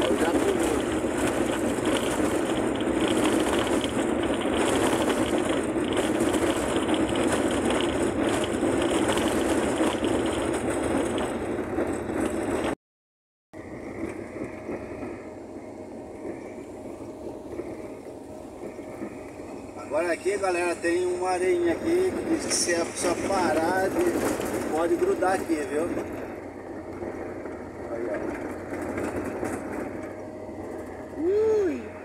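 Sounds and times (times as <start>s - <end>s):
body rattling: 0.0s - 12.8s, 18.5s - 31.2s
van engine and road noise: 0.0s - 12.8s, 13.6s - 32.0s.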